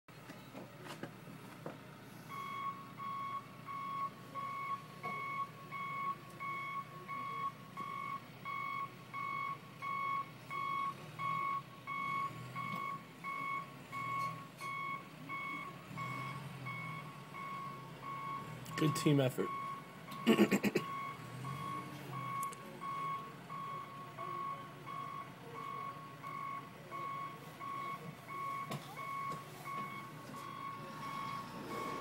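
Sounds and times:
backup alarm beeping: 0:02.3 - 0:32.0
engine running: 0:09.0 - 0:32.0.

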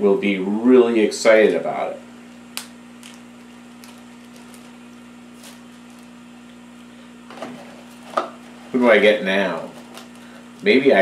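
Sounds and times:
steady low hum: 0:00.0 - 0:11.0
plastic bag crinkling: 0:03.0 - 0:06.6, 0:07.3 - 0:11.0.

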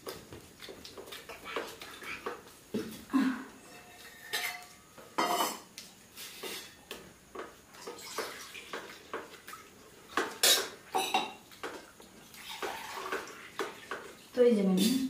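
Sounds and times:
steel dishes clinking and scraping: 0:03.6 - 0:05.7.

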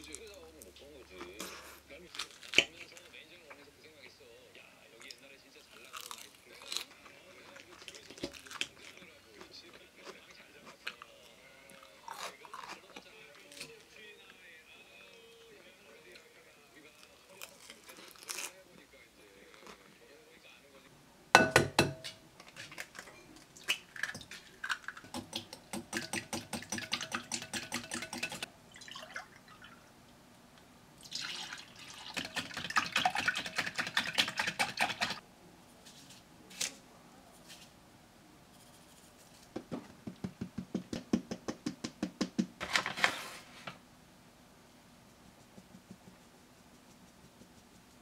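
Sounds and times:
whisk beating eggs in glass bowl: 0:25.1 - 0:28.5, 0:31.8 - 0:35.2.

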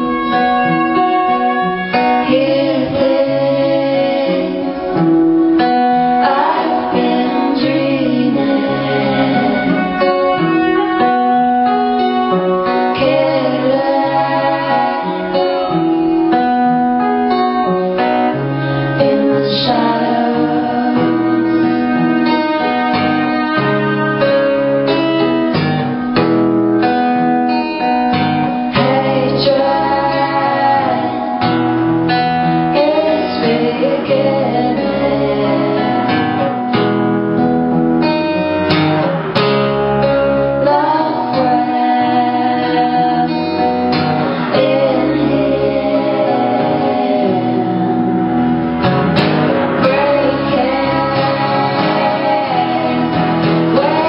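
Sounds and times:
woman singing: 0:00.0 - 0:23.7, 0:27.9 - 0:36.8, 0:40.4 - 0:48.5, 0:49.5 - 0:54.0
strummed acoustic guitar: 0:00.0 - 0:54.0
violin: 0:00.0 - 0:54.0.

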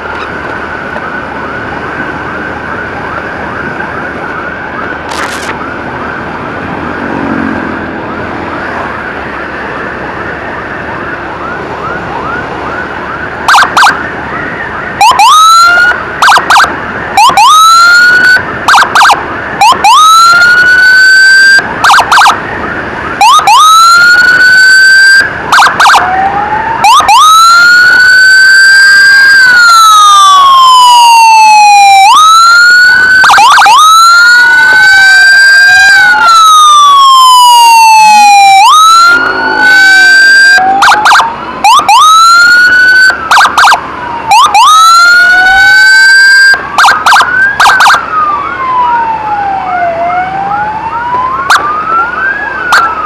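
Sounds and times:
road noise: 0:00.0 - 0:53.0
loud close siren: 0:02.5 - 0:53.0
siren yelping: 0:02.6 - 0:53.0.

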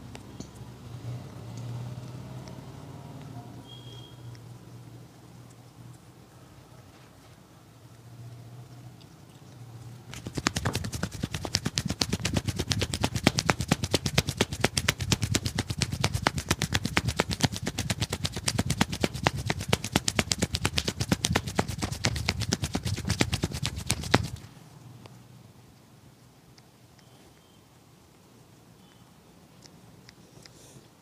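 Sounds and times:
hands slapping a head: 0:10.1 - 0:24.5.

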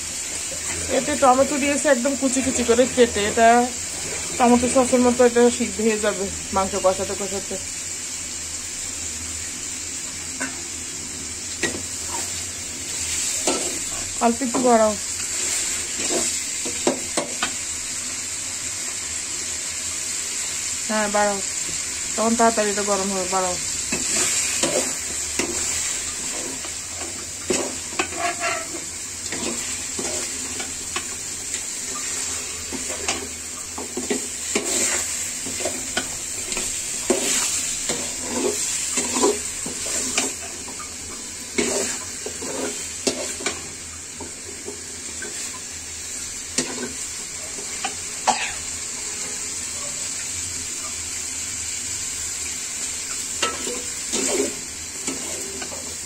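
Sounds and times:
frying sizzle: 0:00.0 - 0:56.0
spoon scraping metal pan: 0:27.5 - 0:30.3.

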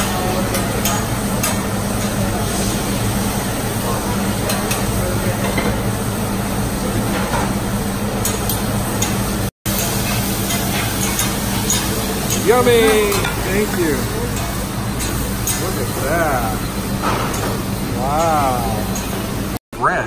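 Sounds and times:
food sizzling on a griddle: 0:00.0 - 0:19.6.

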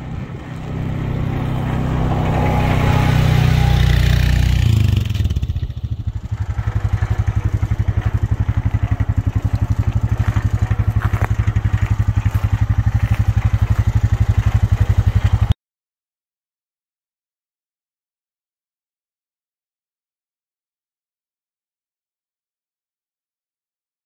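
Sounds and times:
atv engine idling: 0:00.0 - 0:15.6.

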